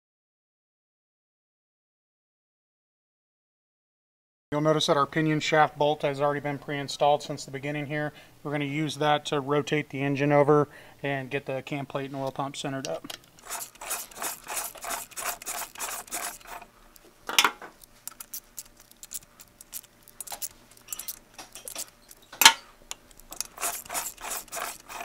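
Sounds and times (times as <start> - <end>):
metal tool clacks: 13.1 - 16.7, 17.3 - 25.0
hand ratchet clicking: 13.1 - 17.1, 17.8 - 22.3, 22.9 - 25.0.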